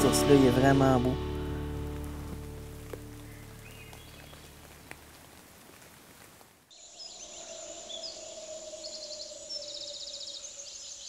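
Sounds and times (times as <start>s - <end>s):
birds chirping and trilling: 3.0s - 4.7s, 6.7s - 11.0s.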